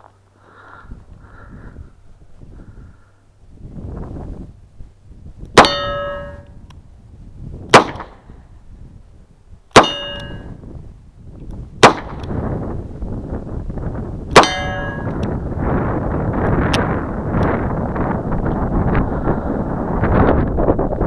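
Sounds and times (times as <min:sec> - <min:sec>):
steel target ringing clang: 0:05.6 - 0:06.6, 0:09.7 - 0:10.6, 0:14.3 - 0:15.2
handgun shots: 0:07.7 - 0:08.2, 0:11.8 - 0:12.3.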